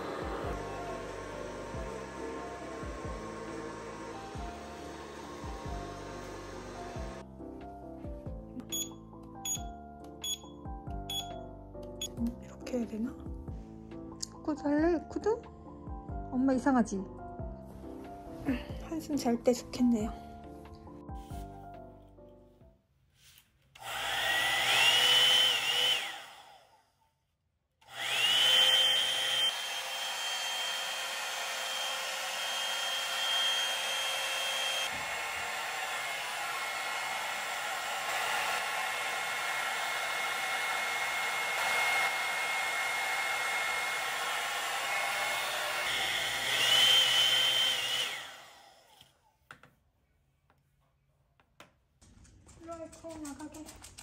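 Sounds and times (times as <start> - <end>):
hair styler blower whine: 0.0 - 7.3, 23.8 - 26.8, 27.8 - 49.2.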